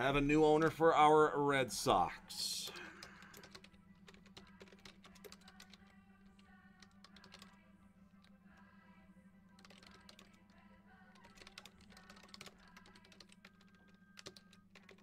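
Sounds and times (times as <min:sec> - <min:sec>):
steady low hum: 0:00.0 - 0:15.0
keyboard typing clicks: 0:02.6 - 0:05.9, 0:09.6 - 0:10.4, 0:11.2 - 0:15.0.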